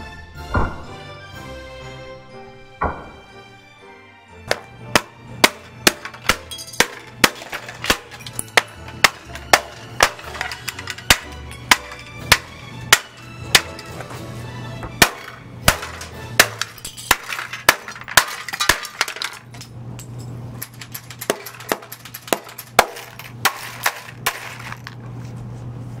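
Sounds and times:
hammer smashing clocks: 4.5 - 14.1, 14.9 - 19.5, 20.6 - 24.9
shards clinking: 4.5 - 14.2, 15.0 - 25.0
glass cracking: 5.4 - 14.0, 15.0 - 19.6.

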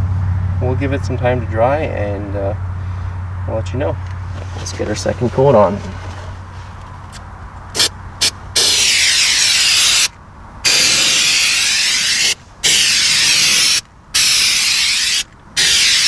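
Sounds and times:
aerosol can spraying: 7.8 - 10.1, 10.7 - 16.0.

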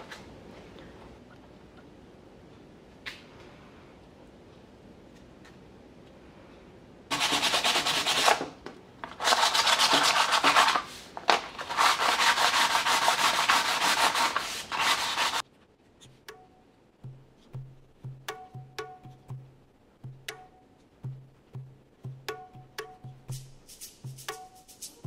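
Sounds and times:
sandpaper scratching: 7.1 - 8.4, 9.2 - 15.4
light percussive music: 16.0 - 25.0.

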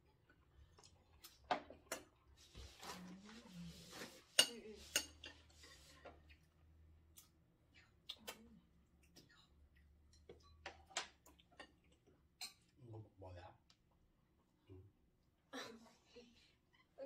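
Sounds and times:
tableware clinking: 12.4 - 12.7.

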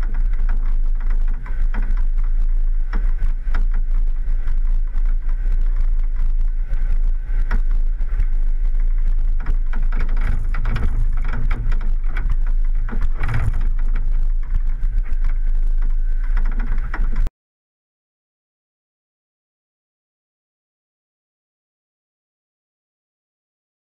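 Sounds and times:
knocks and rattles over bumps: 0.0 - 17.3
vehicle engine low rumble: 0.0 - 17.3.

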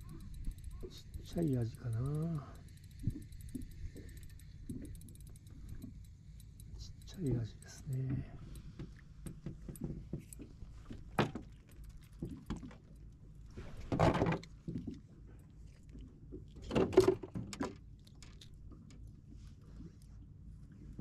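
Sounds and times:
rustling and clattering: 13.5 - 15.1.

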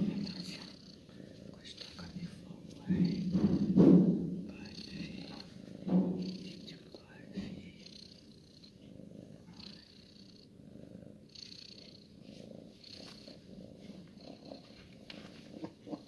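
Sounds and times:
cat purring: 0.0 - 16.0.

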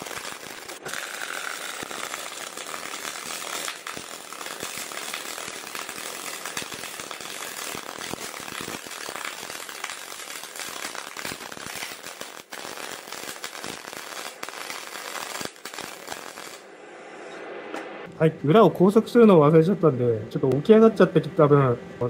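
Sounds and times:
welding arc crackling: 0.0 - 16.7.

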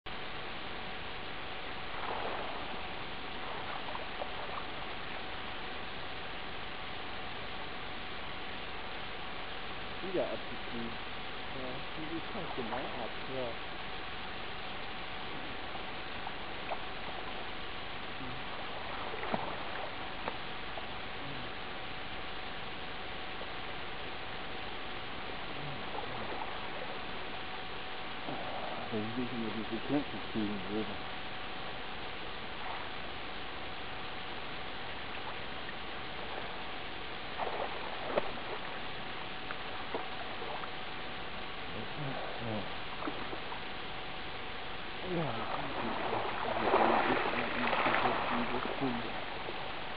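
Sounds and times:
faint hum: 0.1 - 49.9
steady hiss: 0.1 - 49.9
water splashing from wading: 1.6 - 6.2, 14.6 - 21.0, 25.2 - 29.0, 32.3 - 49.9.

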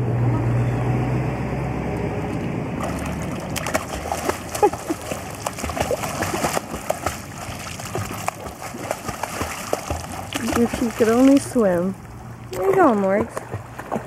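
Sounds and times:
dog splashing in water: 2.8 - 14.0.

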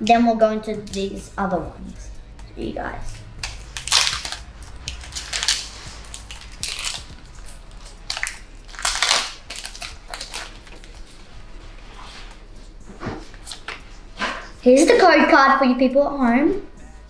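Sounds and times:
foil wrapper tearing and crinkling: 3.4 - 11.1.

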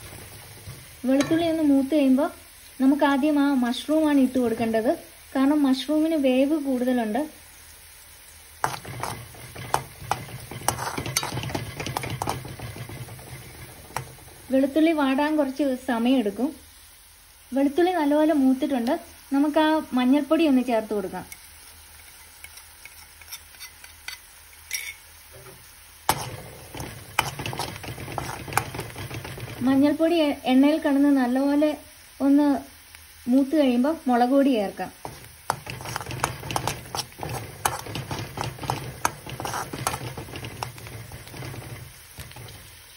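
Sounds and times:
spoon scraping metal pan: 0.0 - 1.9, 8.6 - 15.3, 21.3 - 30.0, 35.0 - 42.9
low sizzle of frying: 0.0 - 42.9.

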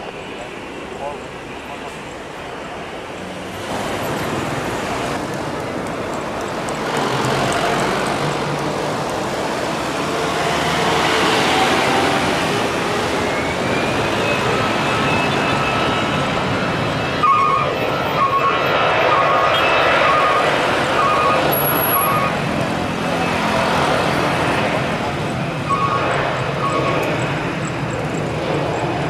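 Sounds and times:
jet engines roaring: 0.0 - 29.0
rising engine whine: 2.2 - 29.0.

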